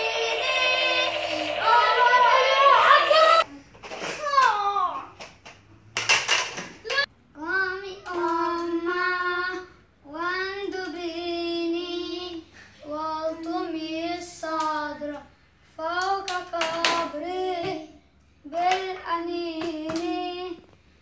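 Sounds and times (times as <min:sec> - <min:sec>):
child singing slow tune: 0:00.0 - 0:03.4, 0:07.3 - 0:20.7.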